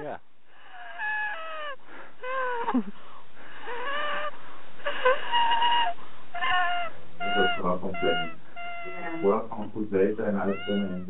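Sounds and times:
person hooting high-pitched: 0:04.9 - 0:09.4, 0:10.4 - 0:11.0.

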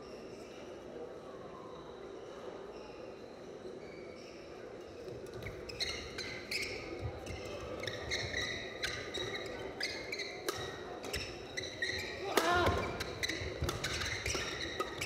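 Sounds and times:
shoes squeaking on court floor: 0:02.7 - 0:15.0
rackets hitting shuttlecock: 0:10.3 - 0:15.0.

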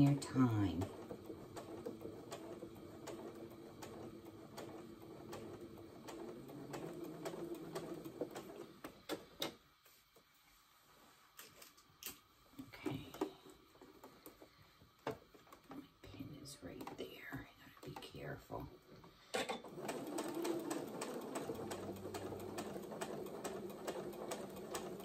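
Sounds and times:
sewing machine stitching: 0:00.0 - 0:09.6, 0:19.1 - 0:25.0.

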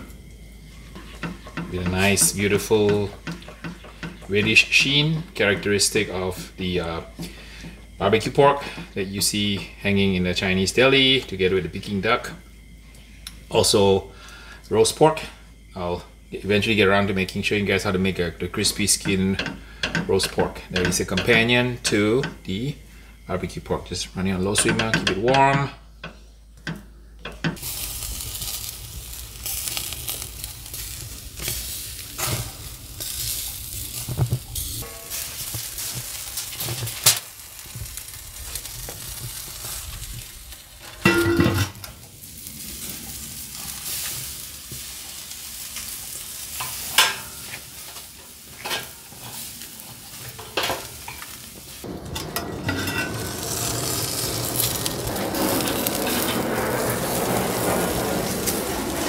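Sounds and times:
meat sizzling: 0:27.6 - 0:59.0.

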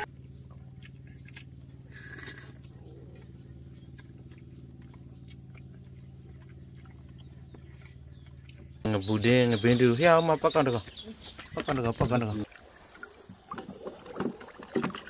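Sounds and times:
low hum: 0:00.0 - 0:09.3.

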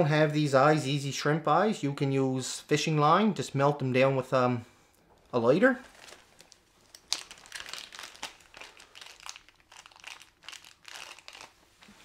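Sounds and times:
plastic packet crinkling: 0:05.7 - 0:12.0.

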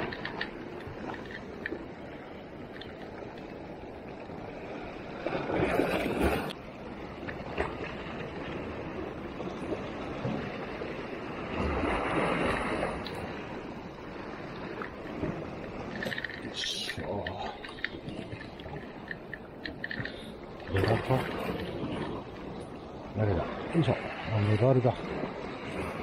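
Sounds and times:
surf washing against rocks: 0:07.2 - 0:26.0.

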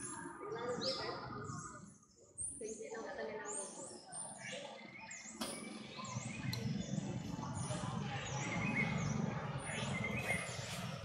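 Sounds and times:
birds chirping: 0:00.0 - 0:11.0
low rumbling noise: 0:06.1 - 0:11.0.

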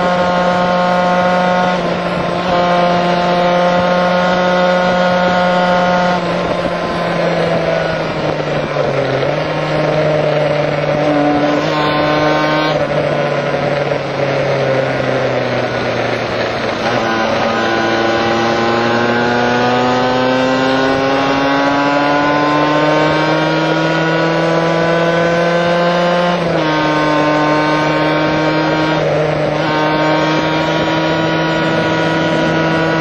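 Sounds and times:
wind rush: 0:00.0 - 0:24.1
motorcycle engine running: 0:00.0 - 0:33.0.

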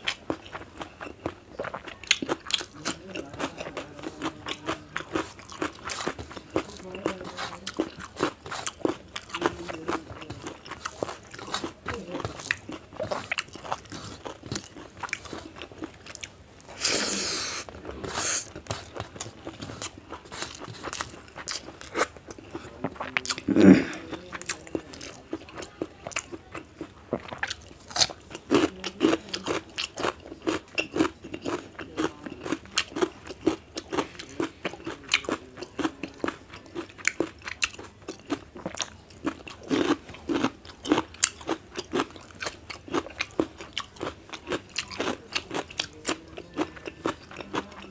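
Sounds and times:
chewing and crunching: 0:00.0 - 0:47.9
breathy hiss: 0:16.7 - 0:18.5.

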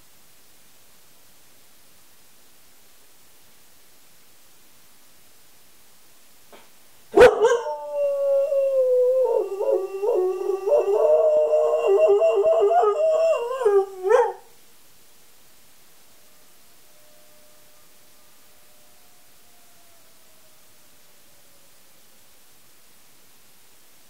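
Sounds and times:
dog howling: 0:07.2 - 0:14.5, 0:16.0 - 0:22.1.

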